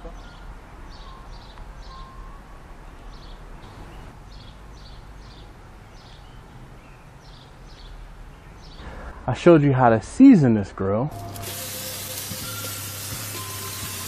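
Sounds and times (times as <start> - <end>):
small bird chirping: 0.0 - 2.4.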